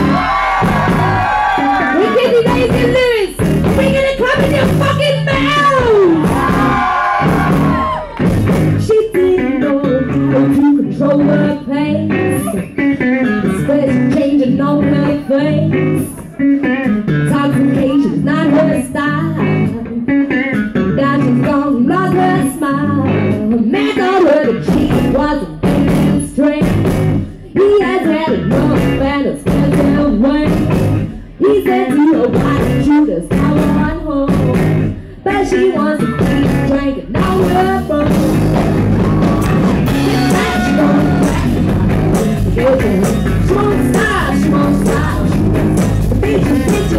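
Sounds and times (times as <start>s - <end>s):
drum kit beat: 0.0s - 10.4s, 24.6s - 27.3s, 28.4s - 31.2s, 32.3s - 34.9s, 36.1s - 46.9s
rhythm and blues band playing: 0.0s - 46.9s
woman singing: 1.9s - 6.5s, 8.8s - 16.2s, 17.2s - 38.5s, 39.9s - 46.9s.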